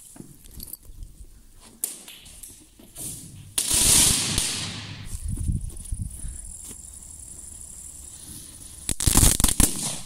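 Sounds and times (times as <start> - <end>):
firecracker bang echoing: 3.0 - 5.1, 8.9 - 10.0.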